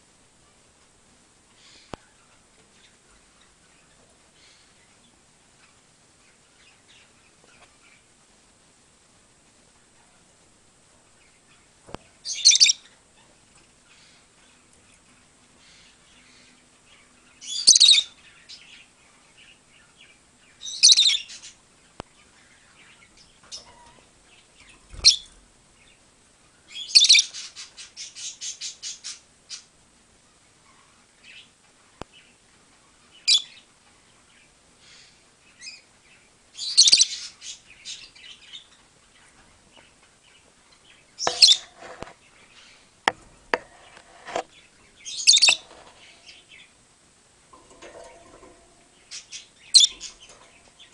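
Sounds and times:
lovebirds shrill calls: 12.2 - 13.0, 17.4 - 18.2, 20.6 - 21.6, 24.9 - 25.4, 26.7 - 29.7, 33.3 - 33.6, 36.6 - 38.7, 41.2 - 42.8, 45.0 - 46.7, 49.0 - 50.9.

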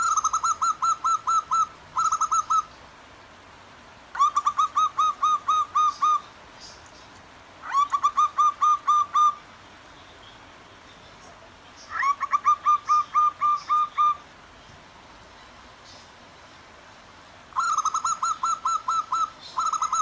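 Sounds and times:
doves cooing: 0.0 - 2.7, 4.2 - 6.4, 7.6 - 9.5, 11.9 - 14.3, 17.5 - 20.0
faint flowing water: 0.0 - 20.0.

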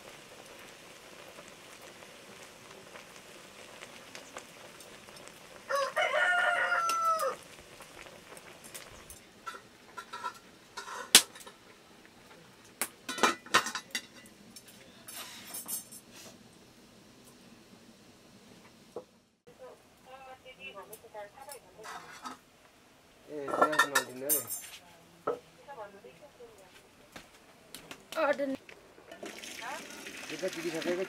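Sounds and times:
rooster crowing: 5.7 - 7.4.

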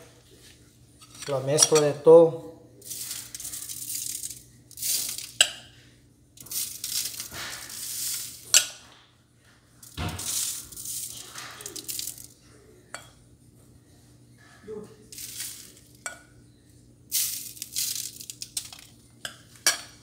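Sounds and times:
spoon scraping and rustling: 0.3 - 1.9, 2.8 - 5.8, 6.4 - 8.7, 9.8 - 12.4, 15.1 - 16.0.

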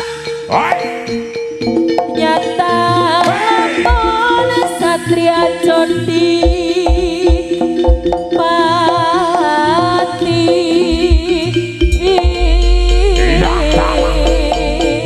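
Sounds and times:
wavering melody: 8.5 - 15.0
low drum beats: 10.9 - 15.0
deep sustained tone: 12.5 - 15.0.

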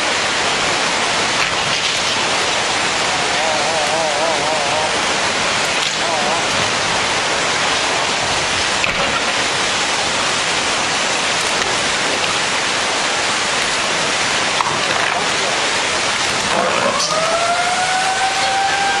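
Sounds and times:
floodwater rushing: 0.0 - 19.0
long wailing tone: 16.8 - 19.0.

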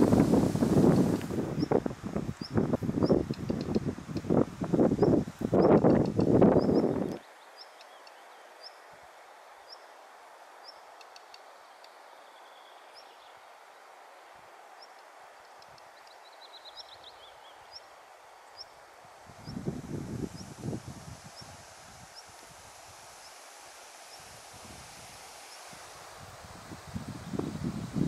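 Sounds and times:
loud wind noise: 0.0 - 7.2, 19.1 - 23.2, 24.2 - 28.0
bird chirping: 14.8 - 17.9.

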